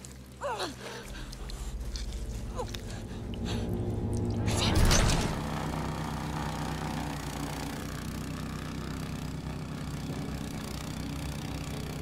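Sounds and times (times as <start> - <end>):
snowblower engine running: 1.2 - 12.0.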